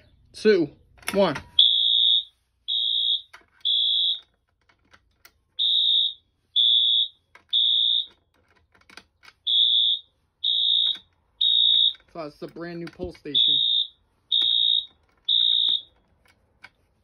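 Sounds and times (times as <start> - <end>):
high-pitched alarm beeps: 1.6 - 4.2, 5.6 - 8.1, 9.5 - 12.0, 13.4 - 15.9.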